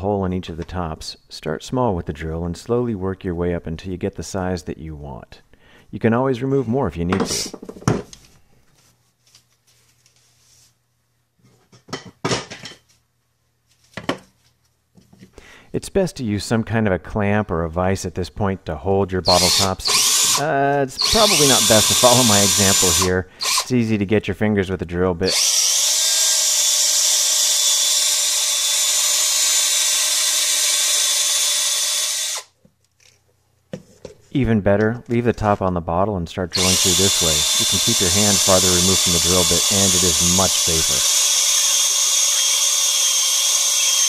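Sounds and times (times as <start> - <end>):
hard objects clattering on workbench: 11.6 - 13.0, 13.9 - 14.4
cordless drill boring plastic: 19.3 - 23.7, 25.3 - 32.6, 36.6 - 44.0.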